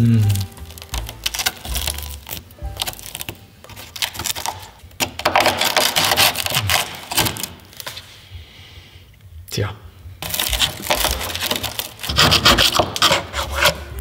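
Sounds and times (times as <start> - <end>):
rust crackling and flaking: 0.0 - 8.4, 10.1 - 14.0
screwdriver scraping rusted metal: 5.4 - 7.4, 10.3 - 13.9.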